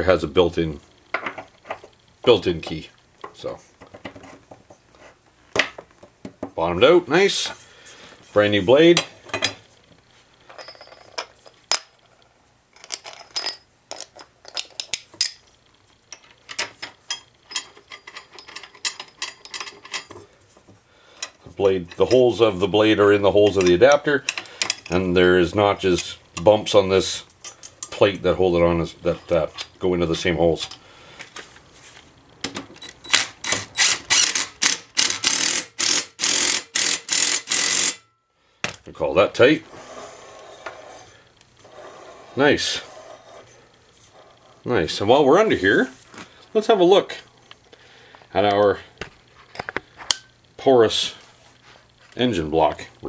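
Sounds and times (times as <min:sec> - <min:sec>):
impact driver bursts: 0:33.0 - 0:38.0.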